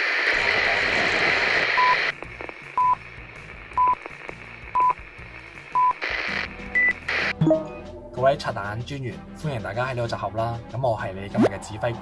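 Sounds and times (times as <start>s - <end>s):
static hiss: 0.0s - 7.3s.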